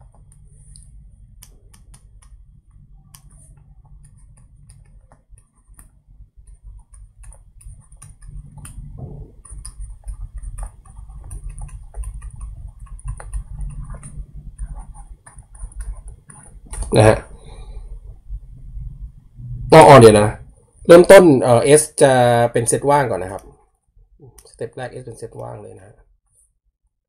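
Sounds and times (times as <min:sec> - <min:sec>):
stylus tapping on pen tablet: 0:00.0 - 0:18.2
low rumble: 0:08.2 - 0:09.9, 0:16.7 - 0:20.8.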